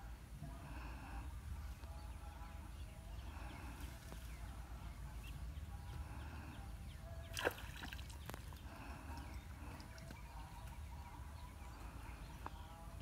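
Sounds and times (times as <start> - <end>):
fish splashing: 7.3 - 8.7.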